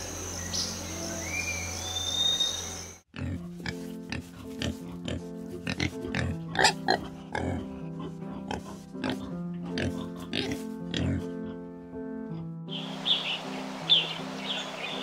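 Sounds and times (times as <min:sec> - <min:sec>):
high insect drone: 0:00.0 - 0:03.0
birds chirping: 0:00.0 - 0:03.1, 0:12.7 - 0:15.0
background music: 0:00.0 - 0:15.0
peccaries grunting: 0:03.1 - 0:11.7.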